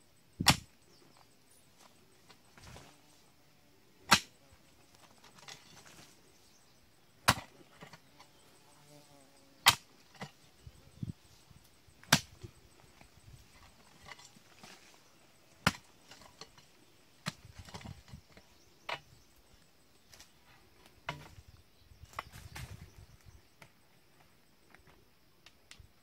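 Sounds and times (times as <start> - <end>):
hoe chopping into soil: 0.4 - 0.7, 4.0 - 4.4, 7.2 - 8.4, 9.6 - 10.4, 12.0 - 12.5, 15.5 - 16.6, 17.2 - 19.1
soil scraping: 1.2 - 3.4, 4.0 - 6.6, 12.0 - 19.3.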